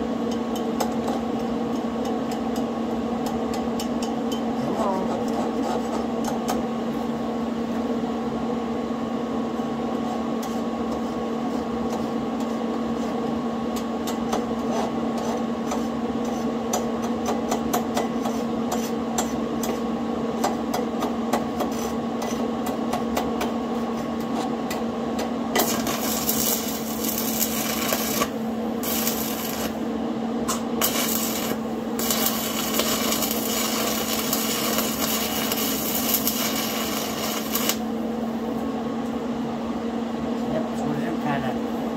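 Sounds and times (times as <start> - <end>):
welding arc frying crackle: 25.5 - 38.2
electric hum: 25.5 - 38.7.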